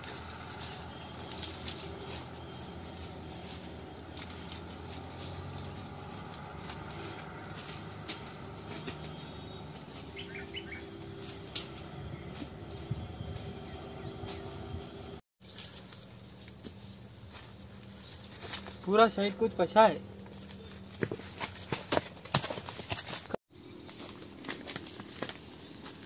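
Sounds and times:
twigs cracking: 0.0s - 12.5s, 20.1s - 26.0s
footsteps through dry leaves: 0.0s - 19.3s
faint bird chirps: 9.0s - 11.0s.

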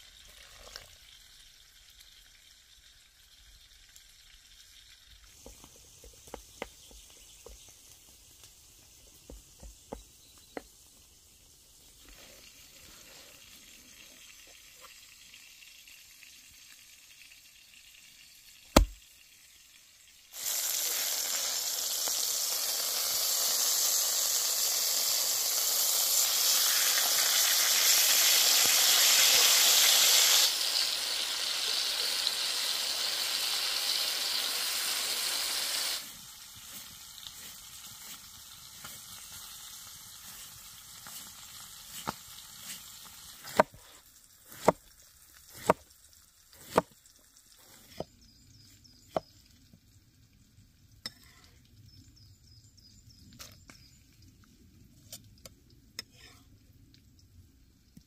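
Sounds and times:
chicken sizzling in oil: 0.0s - 57.9s
sharp knock: 18.8s - 19.0s.

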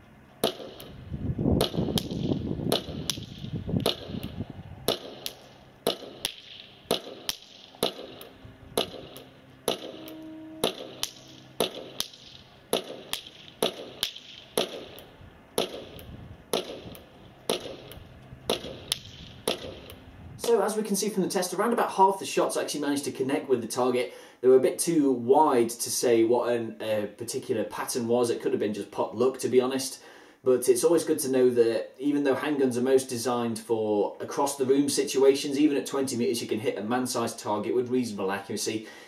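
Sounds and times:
airsoft pistol shots cracking: 0.4s - 1.0s, 1.6s - 20.6s.

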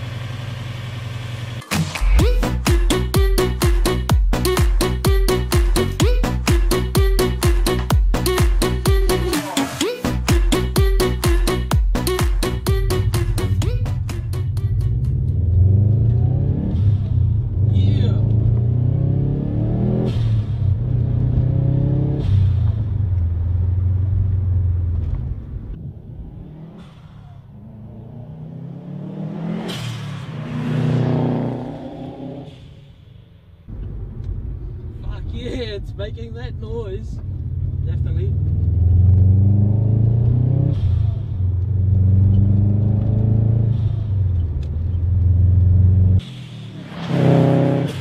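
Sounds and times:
turbocharged car engine accelerating: 0.0s - 48.0s
car engine under boost: 20.0s - 33.0s, 38.4s - 48.0s.

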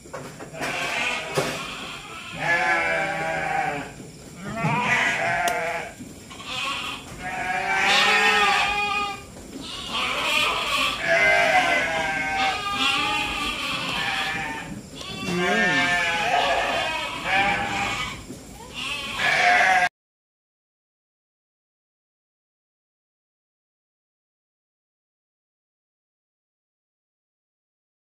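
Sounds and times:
sheep bleating: 0.5s - 19.9s.

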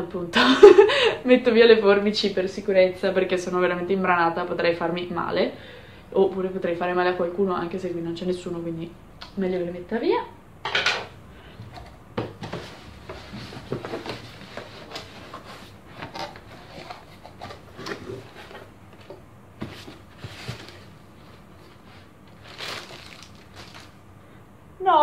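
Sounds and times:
plastic packing crinkling: 19.8s - 24.1s.

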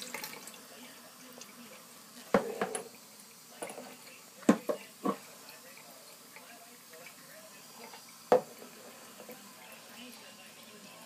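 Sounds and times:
dishes knocking and clinking: 2.3s - 3.0s, 3.6s - 5.3s, 8.3s - 9.3s.

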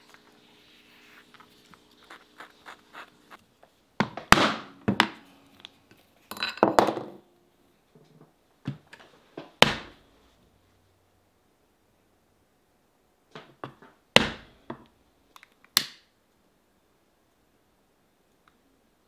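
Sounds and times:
mallet striking metal punch: 4.3s - 5.3s.

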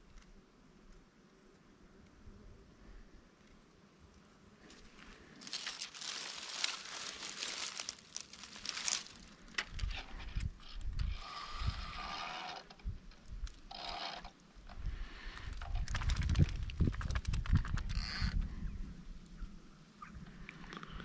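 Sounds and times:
rustling crinkling handling noise: 4.7s - 11.1s.

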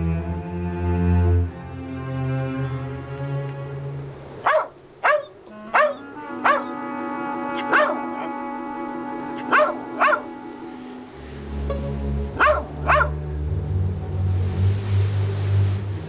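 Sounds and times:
background music: 0.0s - 16.0s
dog barking: 4.4s - 6.8s, 7.6s - 8.3s, 9.4s - 10.3s, 12.4s - 13.2s.

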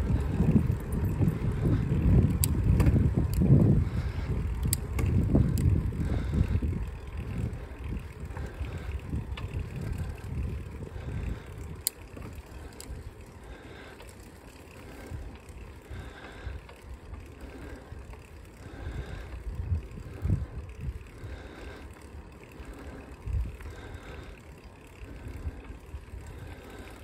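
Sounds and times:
bicycle tyres rumbling on asphalt: 0.0s - 27.0s
wind buffeting microphone: 0.0s - 27.0s.

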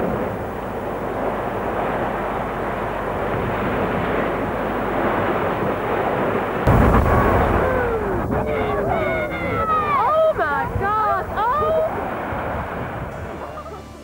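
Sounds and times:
deep rumble: 0.0s - 14.0s
rumble of collapsing masonry: 0.0s - 14.0s.

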